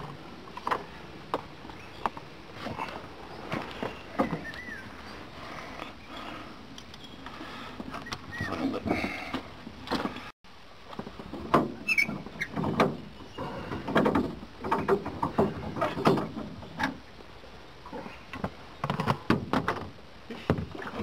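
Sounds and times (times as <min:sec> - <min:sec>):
knocks and bumps on aluminium boat: 0:11.1 - 0:17.0, 0:18.4 - 0:21.0
short squeak: 0:11.8 - 0:12.5.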